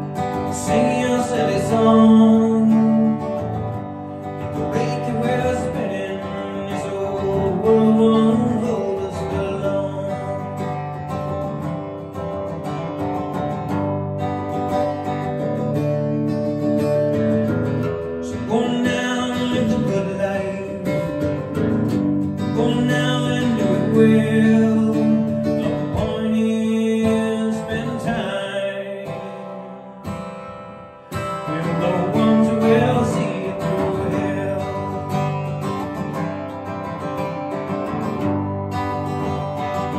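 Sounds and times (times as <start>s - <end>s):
man singing: 0.0s - 11.1s, 18.2s - 30.2s, 31.2s - 36.1s
strummed acoustic guitar: 0.0s - 39.9s.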